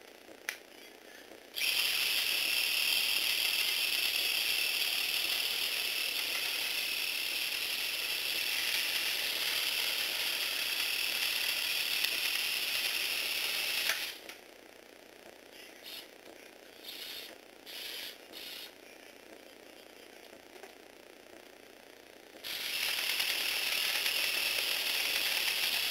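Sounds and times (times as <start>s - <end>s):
electric motor whirring: 1.6s - 14.3s, 16.8s - 18.7s, 22.4s - 25.9s.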